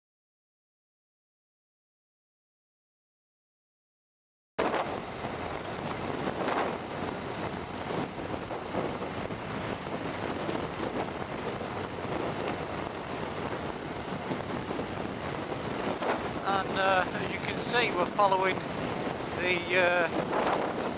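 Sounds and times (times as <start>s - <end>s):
wind rushing over microphone: 4.6s - 20.9s.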